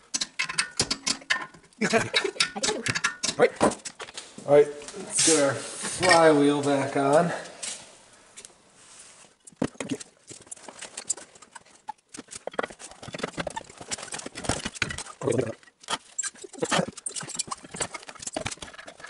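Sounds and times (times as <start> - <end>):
metal clicks and knocks: 0.0 - 4.0.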